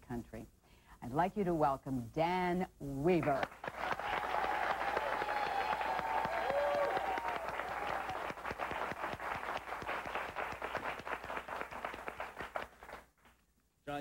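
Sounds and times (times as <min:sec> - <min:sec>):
audience applauding: 0:03.4 - 0:13.4.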